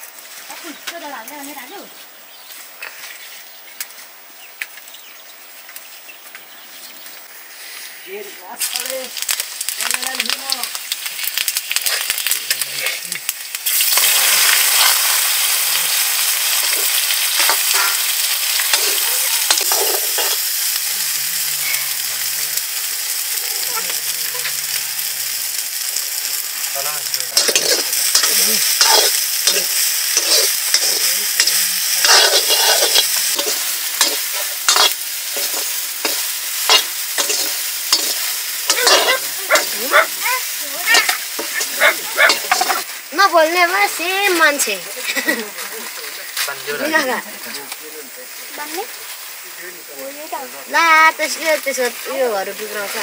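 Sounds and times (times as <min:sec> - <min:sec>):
food sizzling in a pan: 0:00.0 - 0:53.0
utensil scraping pan: 0:16.5 - 0:22.2, 0:27.3 - 0:40.2, 0:40.8 - 0:42.9.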